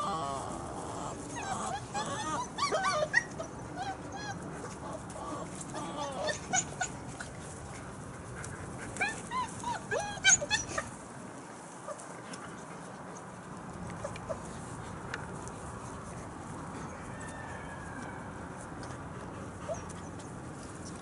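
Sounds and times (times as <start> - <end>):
puppies yipping and whining: 0.0 - 7.4, 8.8 - 11.0.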